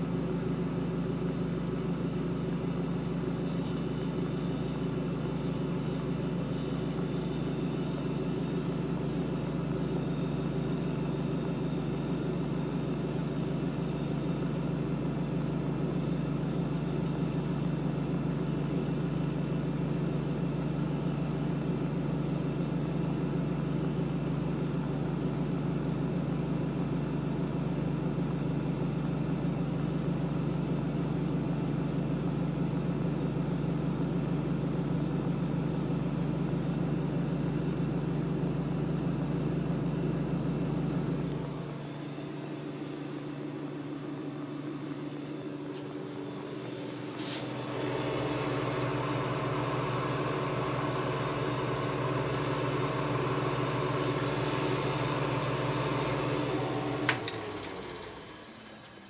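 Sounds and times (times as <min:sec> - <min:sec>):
air dryer electric hum: 0:45.6 - 0:59.0.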